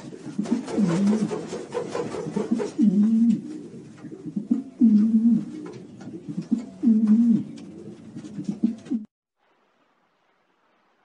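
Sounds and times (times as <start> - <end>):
pigeon cooing: 2.4 - 9.1.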